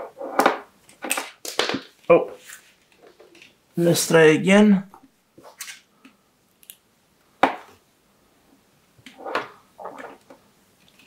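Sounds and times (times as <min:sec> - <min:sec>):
rustling: 0:00.0 - 0:03.6.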